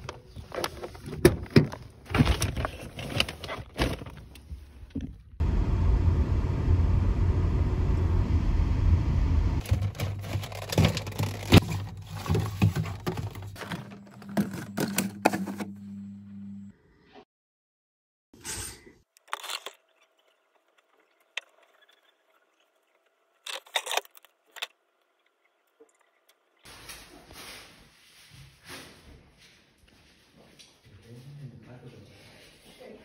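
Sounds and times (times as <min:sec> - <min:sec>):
car road rumble: 0:05.4 - 0:09.6
refrigerator hum: 0:09.0 - 0:16.6
shopping bag rustling: 0:09.7 - 0:14.8.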